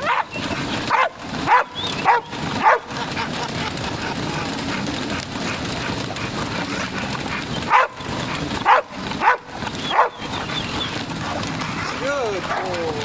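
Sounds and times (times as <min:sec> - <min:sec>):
dog barking: 0:00.0 - 0:02.9, 0:07.7 - 0:10.3, 0:11.2 - 0:12.8.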